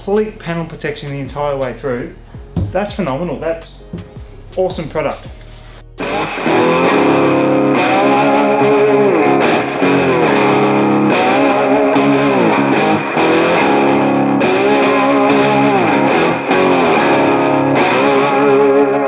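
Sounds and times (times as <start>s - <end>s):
distorted electric guitar riff: 5.4s - 19.0s.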